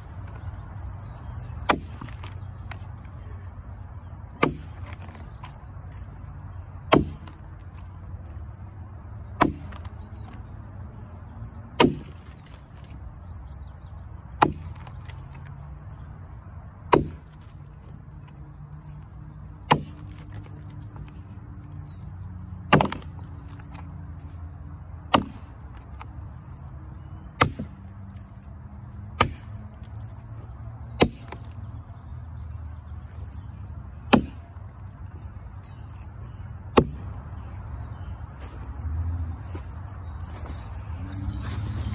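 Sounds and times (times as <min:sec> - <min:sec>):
axe chopping into a log: 0:01.6 - 0:02.8, 0:04.3 - 0:05.5, 0:06.9 - 0:07.9, 0:09.3 - 0:10.4, 0:11.8 - 0:13.0, 0:14.4 - 0:15.5, 0:16.9 - 0:17.5, 0:19.6 - 0:21.1, 0:22.6 - 0:23.8, 0:25.0 - 0:26.1, 0:27.4 - 0:27.8, 0:29.1 - 0:30.3, 0:31.0 - 0:31.6, 0:34.1 - 0:34.5, 0:36.8 - 0:37.1.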